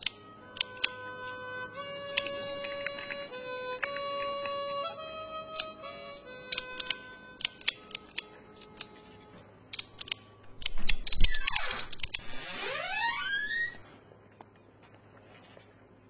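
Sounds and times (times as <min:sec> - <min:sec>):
keyboard typing: 0:00.0 - 0:01.0, 0:02.1 - 0:04.6, 0:06.5 - 0:09.0, 0:09.7 - 0:12.2.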